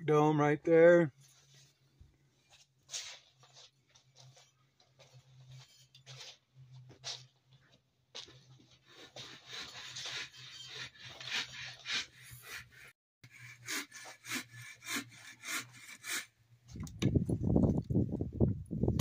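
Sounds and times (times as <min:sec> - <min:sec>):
rustling and scraping in tent: 0:01.1 - 0:09.2.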